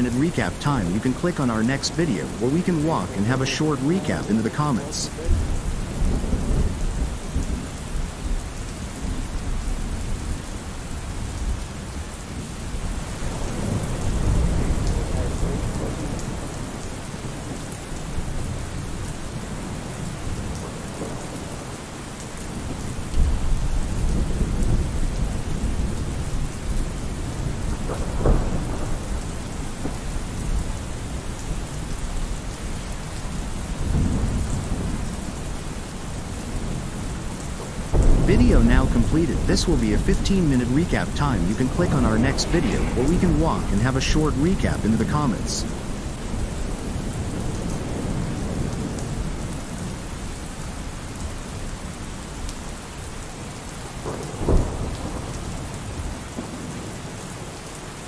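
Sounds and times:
steady rain: 0.0 - 58.0
sharp thunder crack: 37.9 - 43.9
thunder rolling: 37.9 - 48.9.

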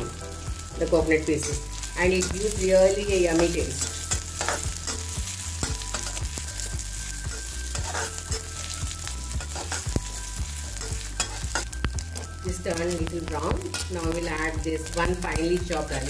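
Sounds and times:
food sizzling in hot oil: 0.0 - 16.0
spatula scraping a pan: 3.3 - 12.3.

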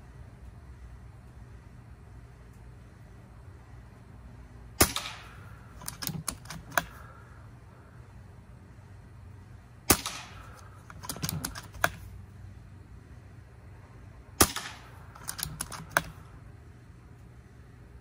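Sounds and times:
small sharp clicks: 4.8 - 7.1, 9.9 - 12.1, 14.4 - 16.2
air rifle shot crack: 4.8 - 7.2, 9.9 - 12.1, 14.4 - 16.3.

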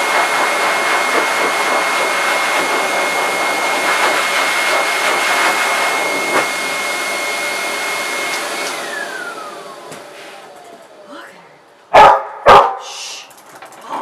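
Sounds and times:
pet blow dryer running: 0.0 - 11.2
motor winding down: 8.0 - 11.1.

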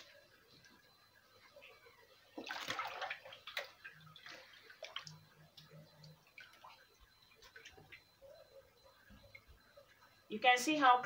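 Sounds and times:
water dripping: 0.0 - 10.3
water splashing and sloshing: 2.1 - 10.2.

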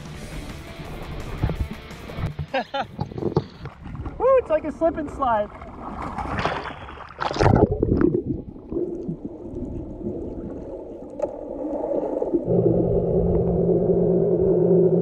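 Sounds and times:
underwater gurgling and rumbling: 1.0 - 4.4, 5.5 - 15.0
water splashing: 2.2 - 15.0
steady low hum: 12.0 - 15.0.

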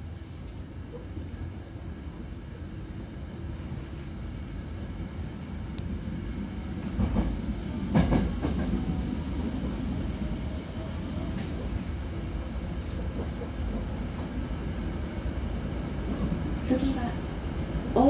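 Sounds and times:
train wheels rumbling on rails: 3.1 - 18.0.

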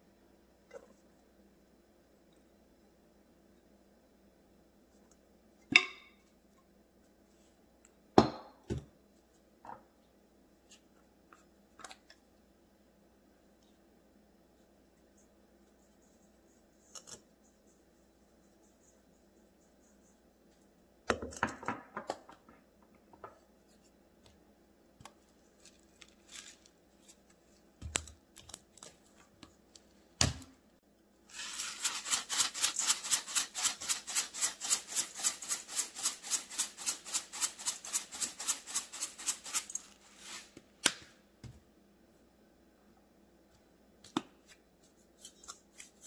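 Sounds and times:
bag of dry ingredients shaken: 31.3 - 35.9.

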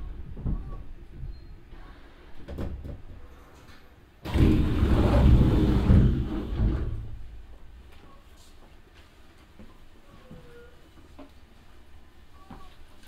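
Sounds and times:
train sliding door engine rush: 4.2 - 7.4.

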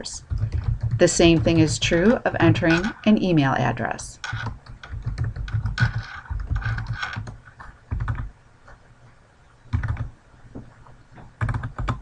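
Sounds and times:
typing on computer keyboard: 0.2 - 3.0, 4.2 - 8.3, 9.7 - 10.1, 11.4 - 12.0.

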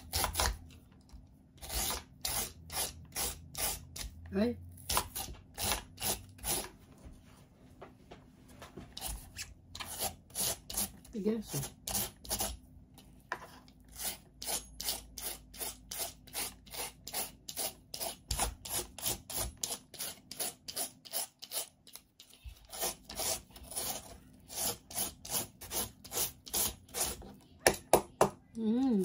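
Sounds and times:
shredder rasping mango: 1.6 - 6.8, 13.9 - 27.2.

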